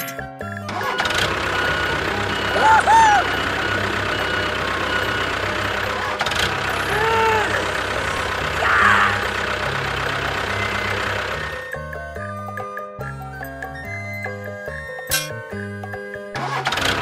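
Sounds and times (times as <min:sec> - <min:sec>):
tractor engine chugging: 0:00.4 - 0:12.8.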